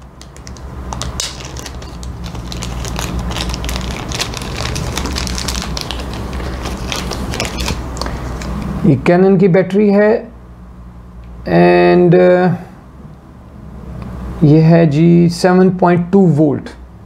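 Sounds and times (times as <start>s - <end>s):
plastic packaging crinkling: 0.0s - 8.6s.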